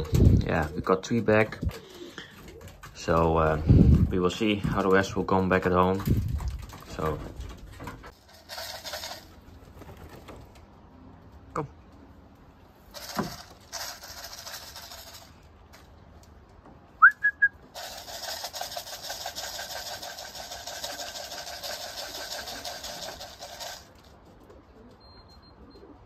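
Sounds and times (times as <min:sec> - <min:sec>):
person whistling: 0:17.0 - 0:17.6.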